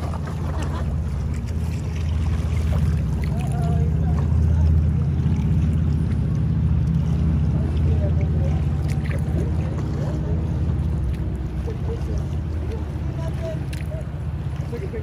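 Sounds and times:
river water: 0:00.0 - 0:15.0.

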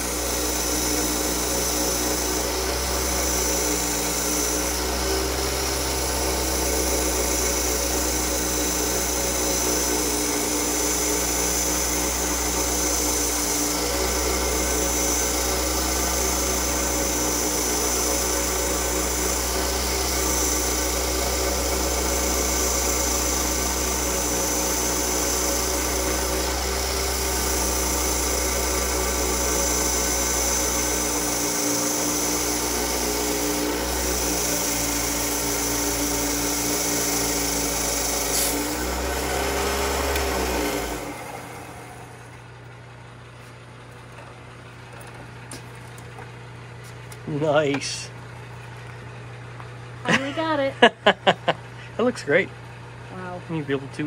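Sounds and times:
band saw cutting glass: 0:00.0 - 0:42.5.

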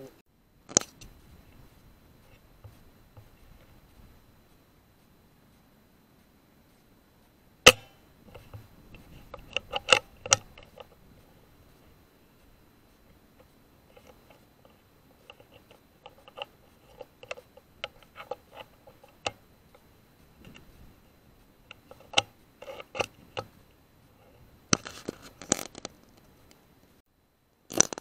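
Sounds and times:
small clicks and taps: 0:13.1 - 0:20.8.

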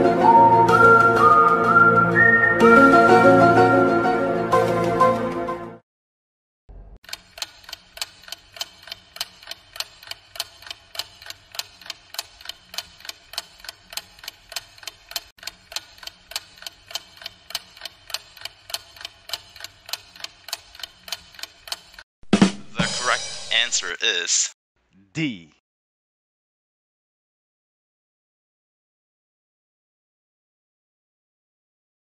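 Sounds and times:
ticking clock: 0:07.0 - 0:22.0.

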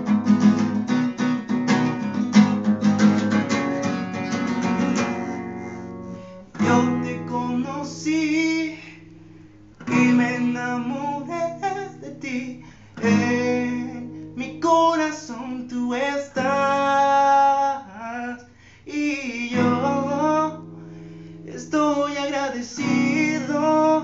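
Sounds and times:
strummed acoustic guitar: 0:00.0 - 0:24.0
man singing a ballad: 0:06.6 - 0:09.2, 0:09.8 - 0:20.8, 0:21.4 - 0:24.0.

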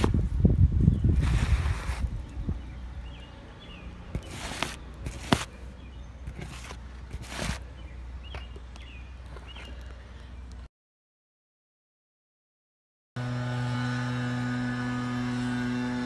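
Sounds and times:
low wind rumble: 0:00.0 - 0:09.3
rustling swishes: 0:01.0 - 0:02.4, 0:04.2 - 0:05.6, 0:06.3 - 0:07.7
faint bird chirps: 0:07.7 - 0:10.5.

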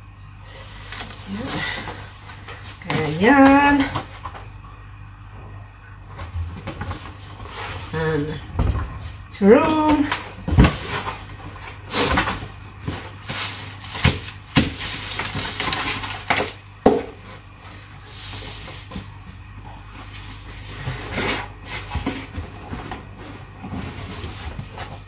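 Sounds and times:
cardboard and bubble wrap rustling: 0:06.1 - 0:25.0.

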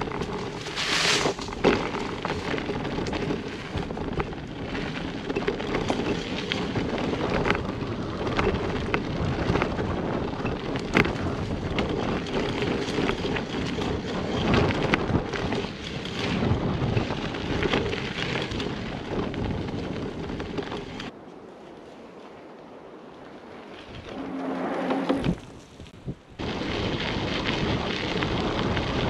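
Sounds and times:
bike clicks and rattles: 0:00.0 - 0:22.3, 0:23.5 - 0:29.0
bike tyre rumble on dirt: 0:00.0 - 0:29.0
wind buffeting microphone: 0:00.0 - 0:29.0.

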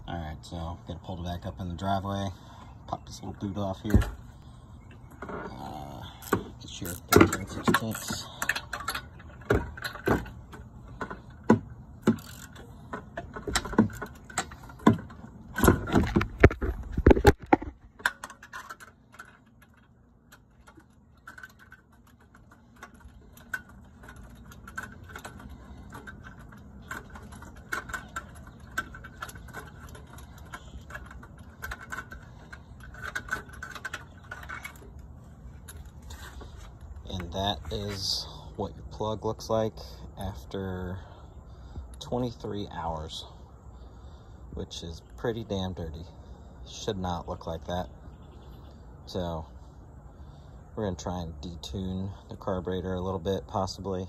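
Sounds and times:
ratchet wrench clicking: 0:12.1 - 0:12.6.

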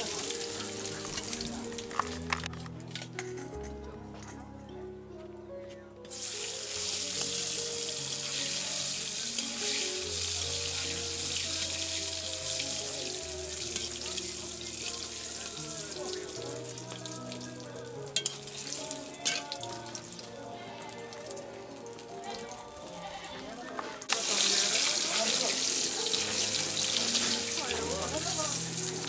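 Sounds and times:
food sizzling in hot oil: 0:00.0 - 0:02.0, 0:06.1 - 0:22.8, 0:24.0 - 0:29.0
background music: 0:00.0 - 0:29.0
metal spatula clinking on wok: 0:18.2 - 0:18.5.

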